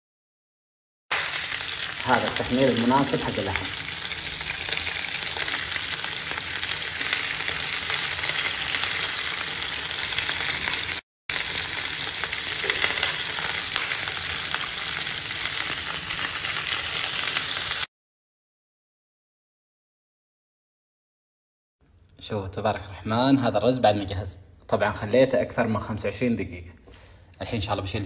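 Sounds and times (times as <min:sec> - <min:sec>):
meat sizzling in a frying pan: 0:01.1 - 0:17.9.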